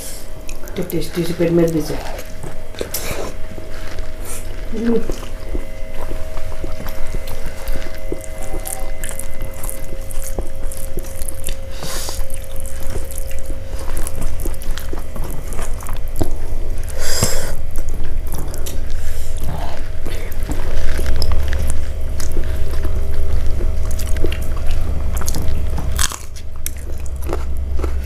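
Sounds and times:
steady low hum: 0:00.0 - 0:28.0
fingers squishing food: 0:00.4 - 0:28.0.

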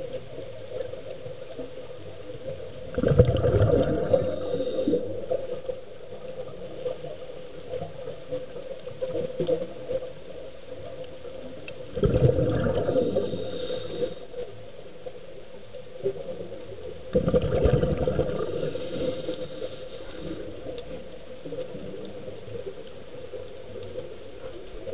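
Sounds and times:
faint hiss: 0:00.0 - 0:24.9
exhaled bubbles from regulator: 0:02.8 - 0:05.4, 0:11.9 - 0:14.2, 0:17.1 - 0:20.6.

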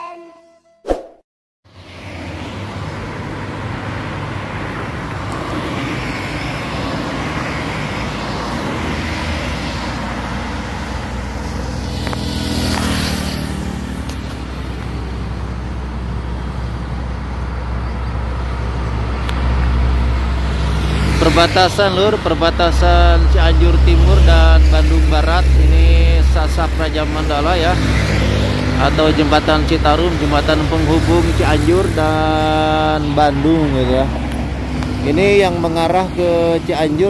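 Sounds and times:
cars and motorbikes passing: 0:01.7 - 0:37.0
truck engine rumble: 0:09.9 - 0:37.0.

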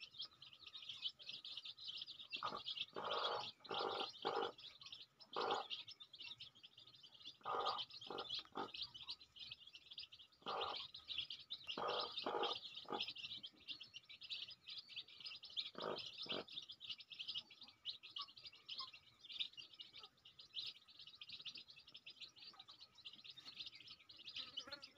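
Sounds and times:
chicks peeping: 0:00.0 - 0:24.9
hen clucking: 0:02.2 - 0:06.4, 0:07.2 - 0:20.7.

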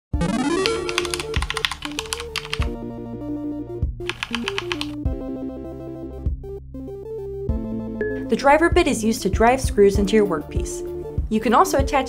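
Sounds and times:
chiptune synth music: 0:00.1 - 0:02.8
computer keyboard typing: 0:00.2 - 0:02.7, 0:04.0 - 0:05.0.

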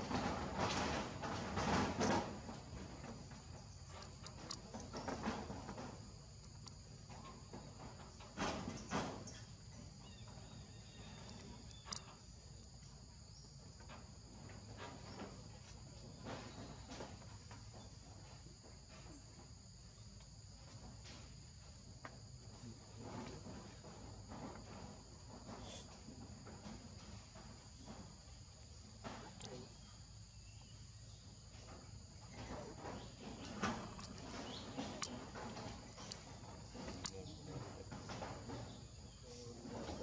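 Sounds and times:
faint clicks and rustles: 0:00.0 - 0:40.0
insect chorus shrilling: 0:08.6 - 0:13.6, 0:29.0 - 0:40.0.

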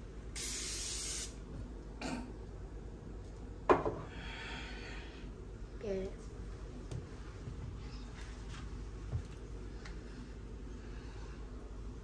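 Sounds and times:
aerosol spray can hissing: 0:00.4 - 0:01.4.

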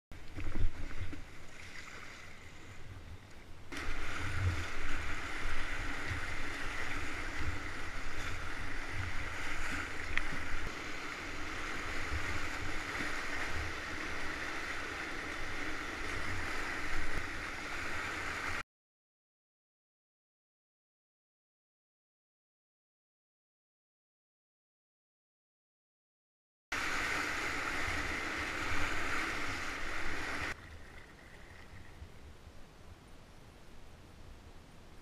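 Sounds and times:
kayak paddle splashing: 0:00.2 - 0:18.6, 0:26.8 - 0:32.1
rush of whitewater rapids: 0:03.7 - 0:18.6, 0:26.8 - 0:30.6.

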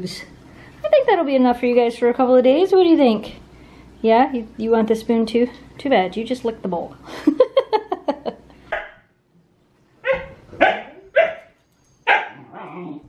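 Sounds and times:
dogs barking: 0:08.7 - 0:09.0, 0:10.0 - 0:12.5
dogs yipping: 0:10.0 - 0:13.0.

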